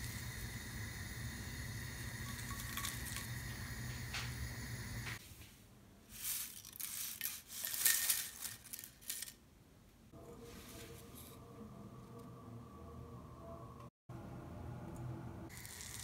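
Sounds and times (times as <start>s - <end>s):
dry leaves scraping out of a pan: 6.1s - 9.3s, 15.5s - 16.0s.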